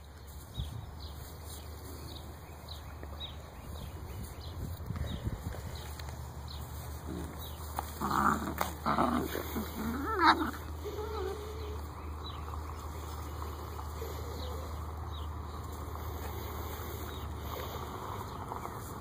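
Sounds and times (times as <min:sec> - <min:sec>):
puppies growling: 0:06.5 - 0:19.0
faint puppy whimper: 0:10.1 - 0:12.0.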